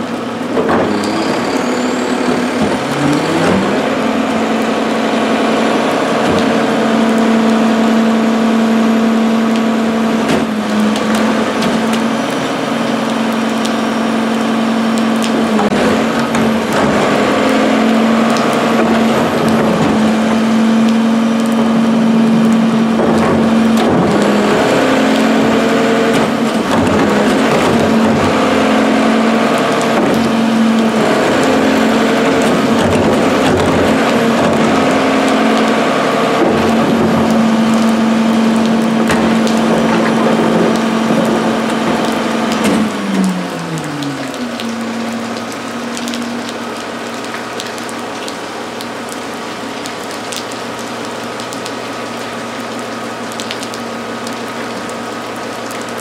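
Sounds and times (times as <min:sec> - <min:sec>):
garbage truck diesel engine revving: 0:00.0 - 0:56.0
trash crunching and knocking: 0:00.4 - 0:01.4, 0:02.3 - 0:07.8, 0:09.4 - 0:12.4, 0:15.2 - 0:46.4.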